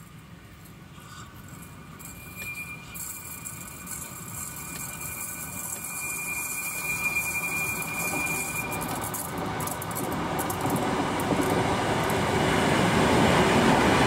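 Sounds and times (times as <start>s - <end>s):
train rumble: 0.0s - 14.0s
wheel squeal: 1.0s - 10.8s.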